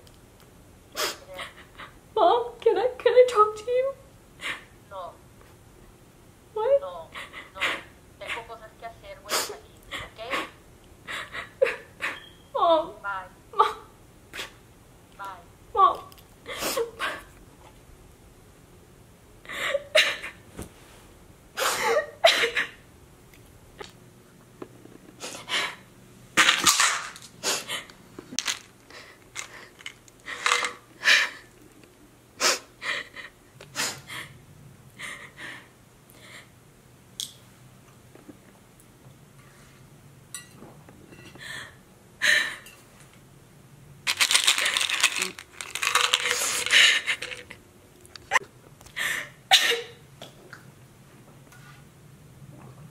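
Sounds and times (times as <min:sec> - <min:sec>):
woman crying and sobbing: 0:01.0 - 0:02.5, 0:06.6 - 0:08.6, 0:09.2 - 0:12.9, 0:15.8 - 0:17.3, 0:19.5 - 0:20.4, 0:21.6 - 0:22.8, 0:32.5 - 0:34.3, 0:46.0 - 0:47.6
pills clinking in plastic bottle: 0:28.4 - 0:30.8, 0:44.1 - 0:47.6.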